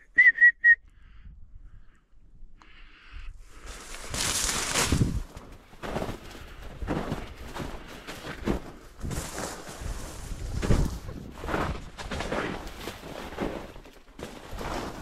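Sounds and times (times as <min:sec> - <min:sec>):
footsteps through dense grass: 0:03.4 - 0:15.0.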